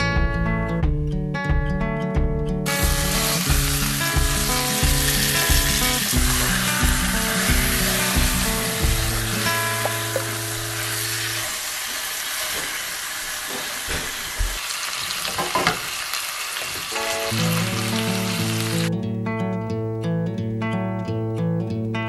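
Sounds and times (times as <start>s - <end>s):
guitar music: 0.0s - 12.4s, 16.9s - 22.0s
chicken sizzling in oil: 2.7s - 18.9s.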